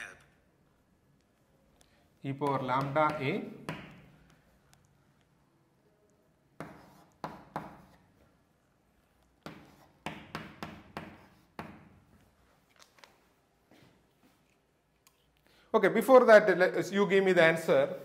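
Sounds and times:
chalk tapping on blackboard: 2.3s - 4.4s, 6.6s - 8.1s, 9.4s - 12.1s.

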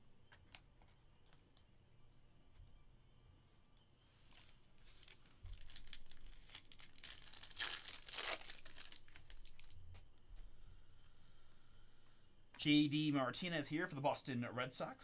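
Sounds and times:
foil wrapper tearing and crinkling: 4.4s - 9.8s.

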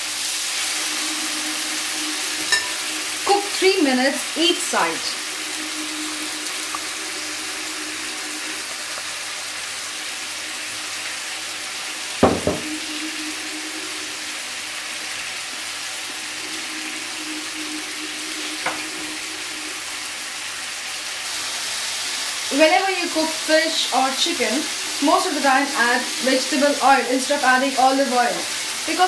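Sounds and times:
fish sizzling in pan: 0.0s - 29.0s
knock: 12.2s - 12.7s.

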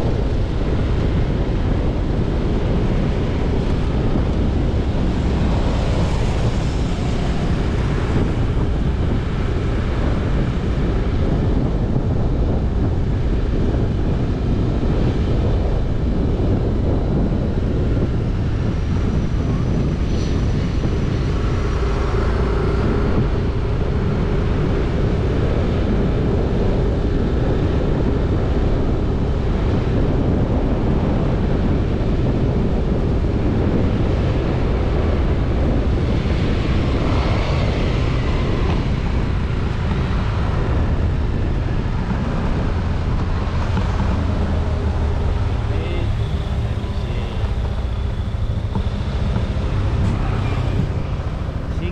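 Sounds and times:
road noise: 0.0s - 51.9s
wind rushing over microphone: 0.0s - 51.9s.

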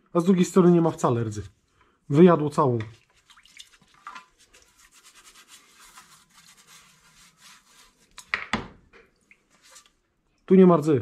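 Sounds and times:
rubbing on wet metal panel: 3.8s - 8.3s.

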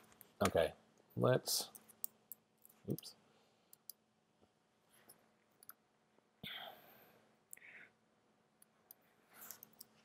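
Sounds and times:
computer mouse clicks: 3.7s - 4.0s, 5.0s - 5.8s, 8.6s - 10.0s.

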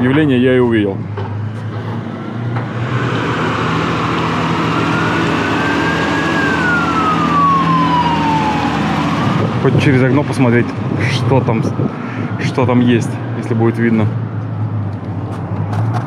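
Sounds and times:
road traffic noise: 0.0s - 16.0s
forklift engine running: 1.0s - 11.0s
siren rising and falling: 2.6s - 10.5s.

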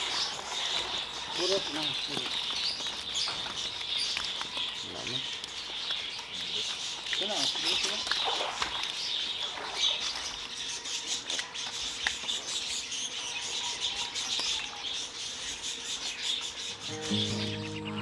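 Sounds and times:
fish thrashing in wet net: 6.0s - 10.6s.

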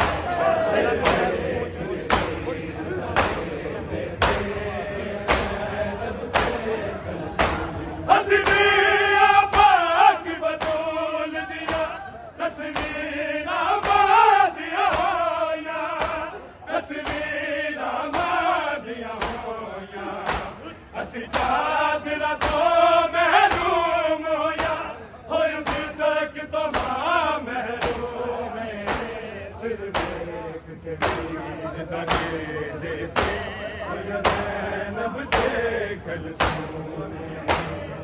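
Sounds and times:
men chanting in unison: 0.0s - 38.0s
hands slapping chests: 1.0s - 1.4s, 2.0s - 2.4s, 3.1s - 3.6s, 4.2s - 4.5s, 5.2s - 5.6s, 6.3s - 6.6s, 7.4s - 7.8s, 10.5s - 11.0s, 11.6s - 12.0s, 12.7s - 13.0s, 13.8s - 14.1s, 14.9s - 15.2s, 15.9s - 16.3s, 17.0s - 17.3s, 19.2s - 19.5s, 20.2s - 20.6s, 22.4s - 22.7s, 24.6s - 24.8s, 25.6s - 26.0s, 26.7s - 27.0s, 27.8s - 28.1s, 28.9s - 29.1s, 29.9s - 30.2s, 31.0s - 31.4s, 32.0s - 32.4s, 33.2s - 33.4s, 34.2s - 34.5s, 35.3s - 35.6s, 36.4s - 36.8s, 37.5s - 37.8s.

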